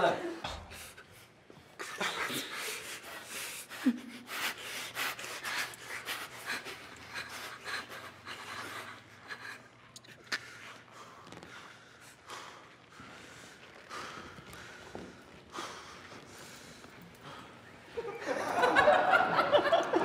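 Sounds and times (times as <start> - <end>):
stifled laughter puffs and snorts: 1.8 - 4.9.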